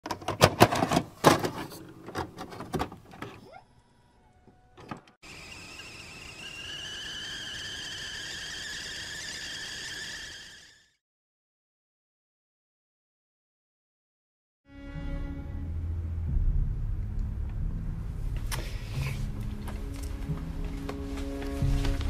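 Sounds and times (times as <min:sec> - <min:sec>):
kettle whistling: 0:05.2 - 0:11.0.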